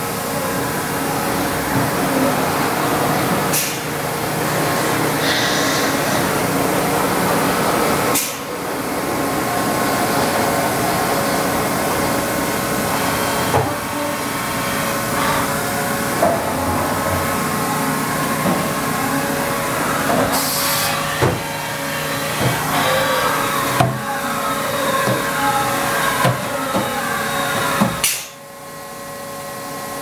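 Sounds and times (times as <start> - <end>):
coolant spraying in machine: 17.3 - 28.3.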